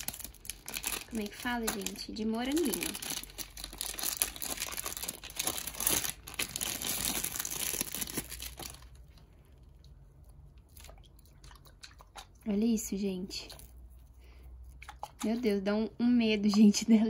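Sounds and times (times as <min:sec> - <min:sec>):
plastic bag crinkling and tearing: 0:00.0 - 0:09.2.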